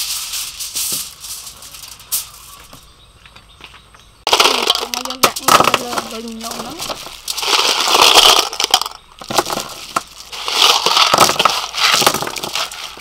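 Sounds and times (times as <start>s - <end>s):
aluminium foil crinkling: 0.0s - 2.7s, 4.3s - 13.0s
clams clattering onto foil: 4.3s - 13.0s.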